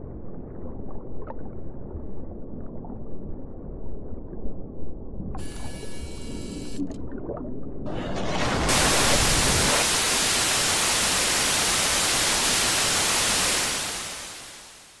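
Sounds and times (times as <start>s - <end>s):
tv static hiss: 5.4s - 6.8s, 8.7s - 15.0s.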